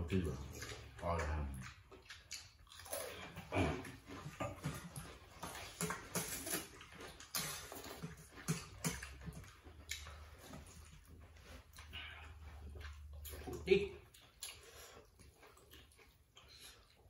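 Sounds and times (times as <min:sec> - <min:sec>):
people slurping noodles: 0:00.4 - 0:11.0.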